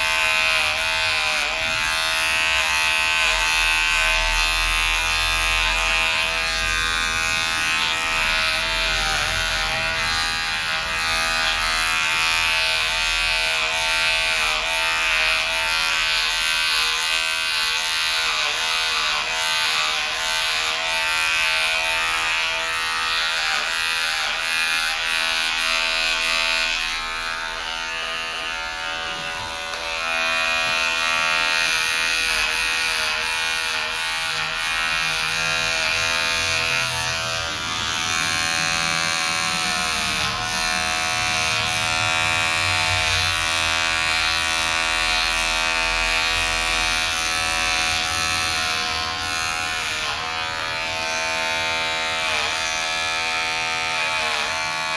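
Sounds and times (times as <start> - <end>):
electric hair clipper buzzing: 0.0 - 54.9.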